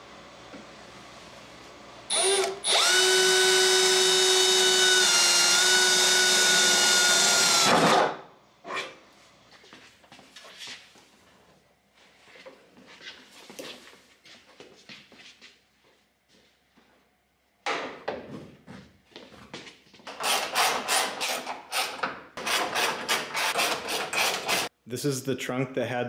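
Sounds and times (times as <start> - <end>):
power drill whining: 2.1 - 8.1.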